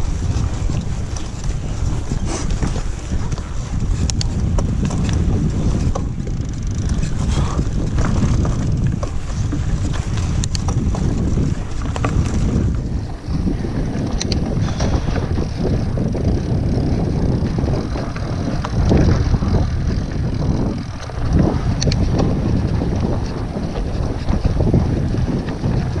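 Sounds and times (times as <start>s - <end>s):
bike rattling over bumps: 0.0s - 26.0s
tyres on sandy trail: 0.0s - 26.0s
wind buffeting microphone: 0.0s - 26.0s.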